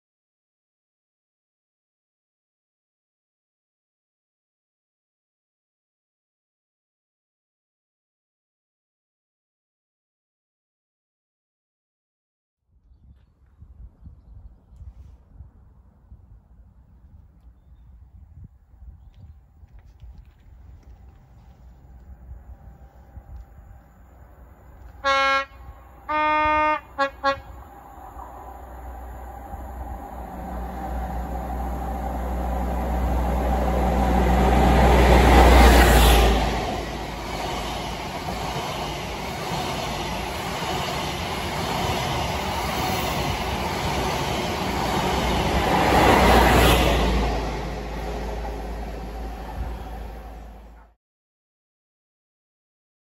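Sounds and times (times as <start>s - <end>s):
train passing at speed: 20.2s - 50.9s
two-tone train horn: 24.8s - 28.2s.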